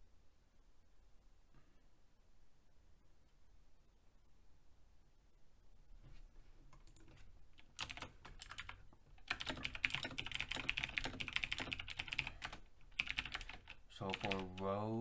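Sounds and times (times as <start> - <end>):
keyboard typing: 6.7 - 14.7.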